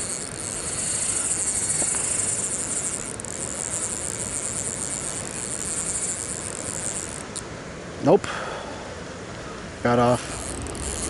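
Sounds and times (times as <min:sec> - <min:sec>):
insects chirping: 0:00.0 - 0:07.5, 0:10.2 - 0:11.0.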